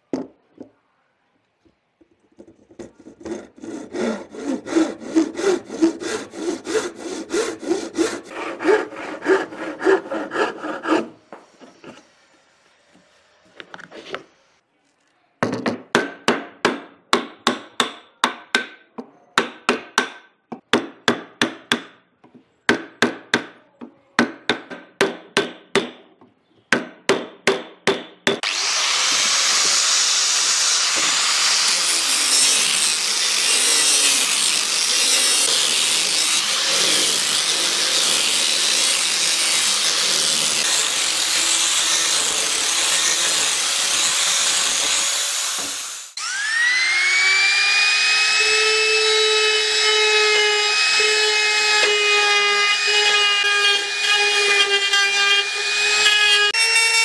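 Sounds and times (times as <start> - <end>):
power tool working wood: 28.4 - 57.0.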